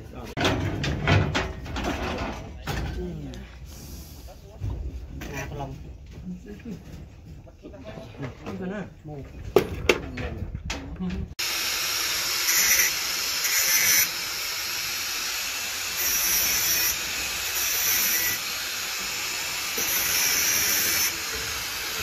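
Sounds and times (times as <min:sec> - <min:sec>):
angle grinder whine: 0:11.4 - 0:22.0
grinding disc on metal bar: 0:19.7 - 0:22.0.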